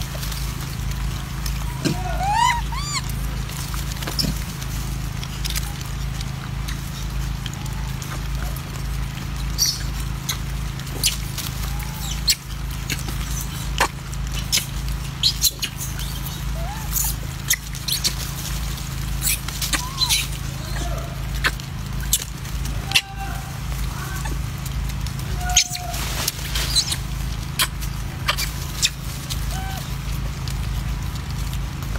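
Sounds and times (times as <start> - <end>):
low rumble: 0.0 - 31.9
monkey squeaky calls: 1.6 - 3.2, 9.5 - 18.5, 19.2 - 24.4, 25.3 - 29.9.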